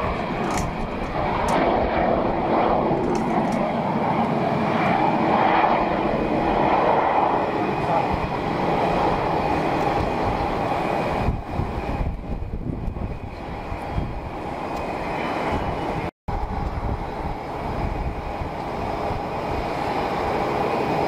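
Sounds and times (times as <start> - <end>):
airliner engines running: 0.0 - 21.0.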